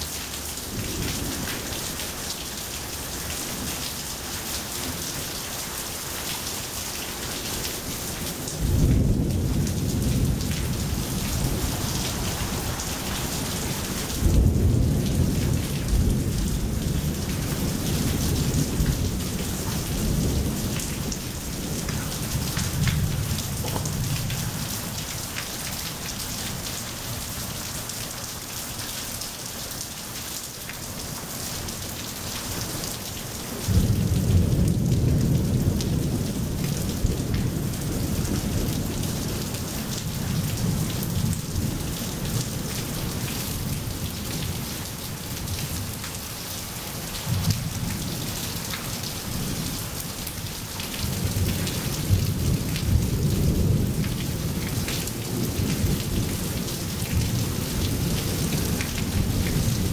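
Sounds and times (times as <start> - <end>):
rain pattering on wet pavement: 0.0 - 59.9
thunder rumbling: 8.4 - 26.7, 33.6 - 41.7.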